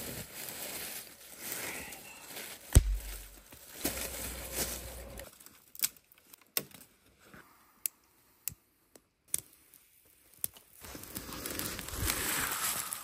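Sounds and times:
leaf litter rustling: 0.0 - 5.5, 10.8 - 13.0
twigs snapping and crackling: 2.5 - 6.9.

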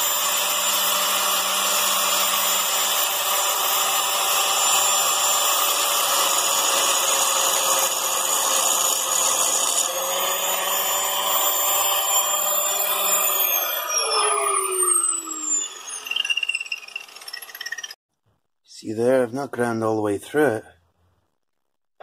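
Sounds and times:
angle grinder grinding steel: 0.0 - 18.0
grinder disc spinning down: 10.5 - 18.0.

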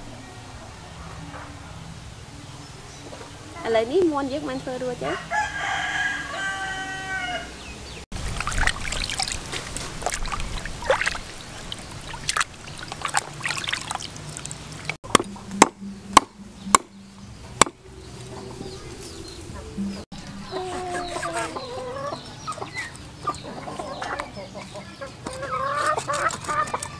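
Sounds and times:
rooster crowing: 5.0 - 7.7
hands splashing water in a basin: 8.2 - 15.0
cleaver chopping on wooden board: 15.1 - 17.0, 17.6 - 17.8.

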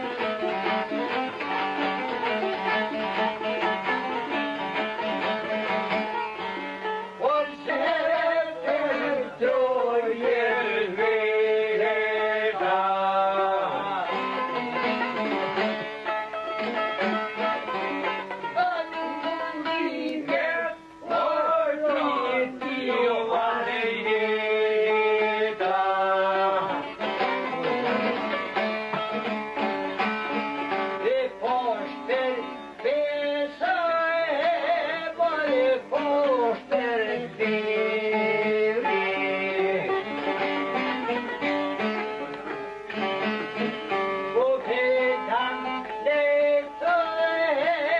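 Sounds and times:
plucked string instrument: 0.0 - 47.9
men singing: 7.2 - 14.6, 18.6 - 27.0, 31.0 - 40.2, 44.3 - 47.9
person singing long notes: 31.0 - 40.5.

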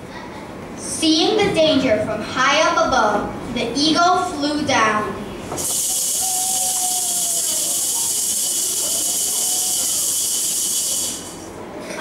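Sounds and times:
steady hissing: 5.6 - 11.5.

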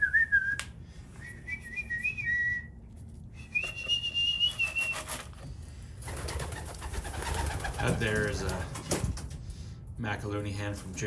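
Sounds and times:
person whistling held notes: 0.0 - 5.1.

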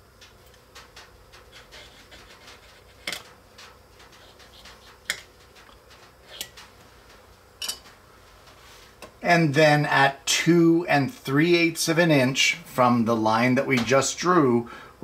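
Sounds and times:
pencil scratching along steel: 1.5 - 3.2, 4.1 - 5.2.

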